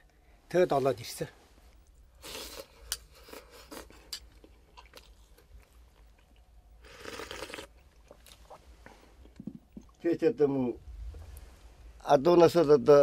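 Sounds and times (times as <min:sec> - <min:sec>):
quiet chewing: 0:01.7 - 0:10.0
slurp from bowl: 0:06.8 - 0:07.7.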